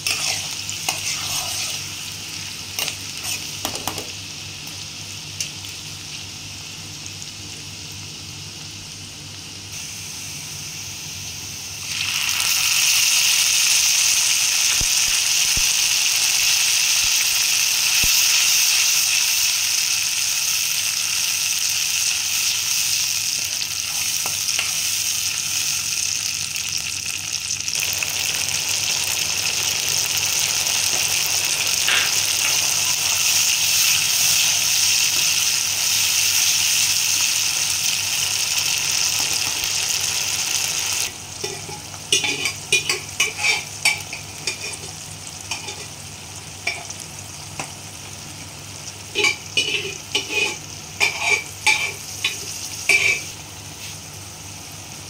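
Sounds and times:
metal spoon stirring and scraping: 0.0 - 1.9, 41.4 - 44.9, 49.2 - 53.3
spices sizzling in hot oil: 0.0 - 55.0.

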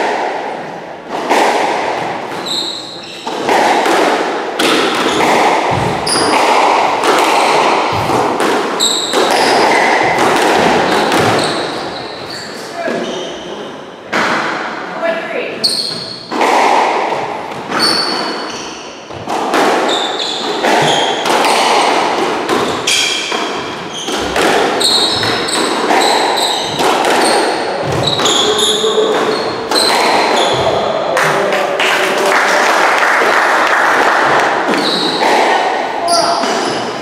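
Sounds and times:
squash ball smacking rackets and walls: 0.0 - 31.5, 33.2 - 37.0
shoes squeaking on wooden floor: 2.0 - 3.6, 4.9 - 13.8, 15.6 - 16.4, 17.5 - 31.0, 34.7 - 35.4, 36.0 - 37.0.

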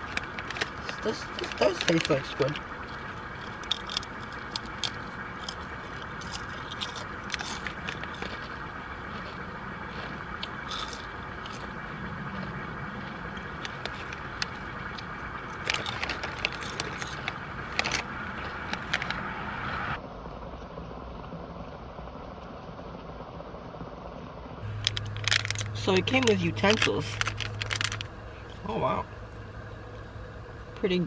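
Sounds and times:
foil bag crinkling: 0.0 - 19.3, 24.6 - 28.5
potato chips crunching: 0.0 - 19.3, 24.6 - 28.1
steady background hum: 0.0 - 31.0.

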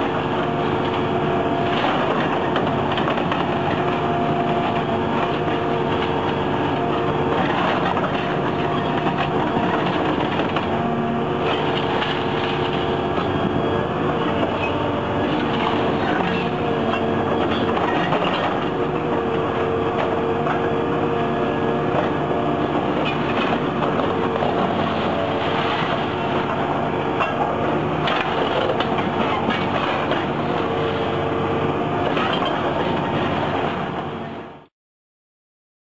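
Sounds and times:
excavator diesel engine running: 0.0 - 34.7
concrete cracking under crusher: 6.8 - 10.7, 11.4 - 13.3, 22.8 - 30.6.

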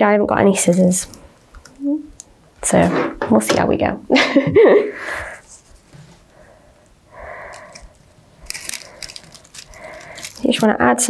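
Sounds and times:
soft breathy noise: 4.8 - 10.5
ribbon rustling: 7.1 - 10.8
crinkly scrapes: 7.4 - 10.8.

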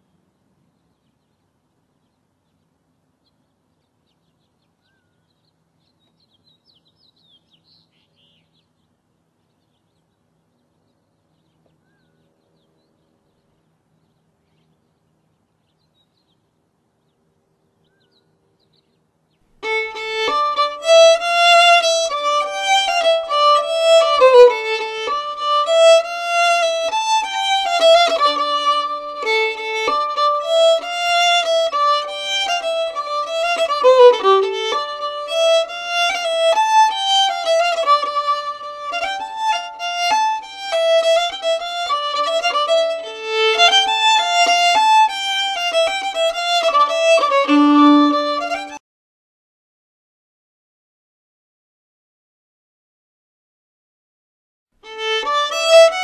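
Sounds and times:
faint bird chirp: 0.0 - 19.6
fiddle tune on violin: 19.6 - 48.8, 54.8 - 56.0.

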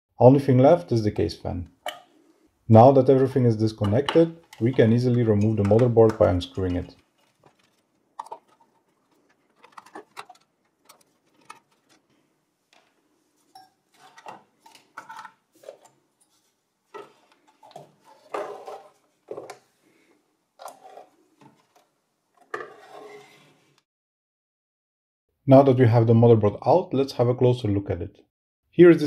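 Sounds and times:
small metallic clicks and scrapes: 3.8 - 19.6.

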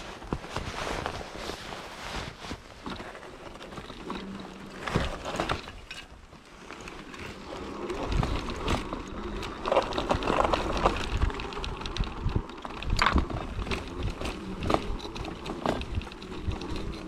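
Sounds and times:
tyres rumbling on dirt trail: 0.0 - 17.0
faint electric motor hum: 2.9 - 17.0
frame rattling: 6.8 - 17.0.

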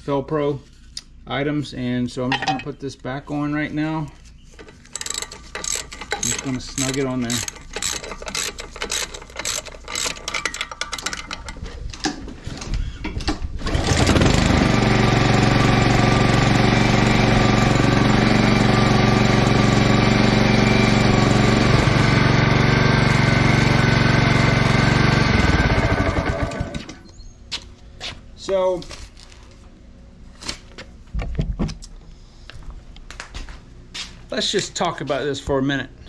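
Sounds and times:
ratchet clicking rapidly: 4.9 - 11.3
engine running loud: 13.6 - 26.9.

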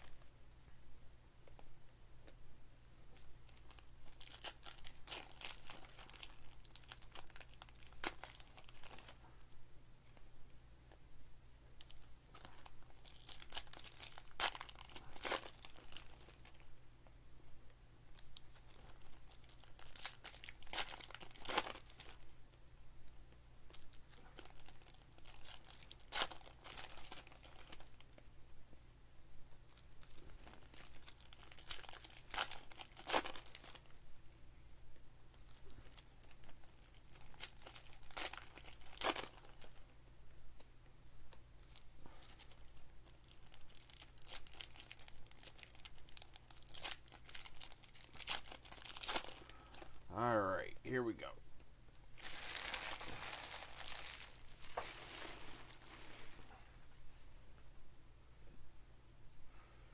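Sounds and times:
foil wrappers tearing and crinkling: 3.5 - 9.2, 12.0 - 16.6, 18.5 - 22.2, 23.7 - 28.2, 29.8 - 33.9, 35.5 - 39.9, 41.7 - 50.0, 52.2 - 56.5.

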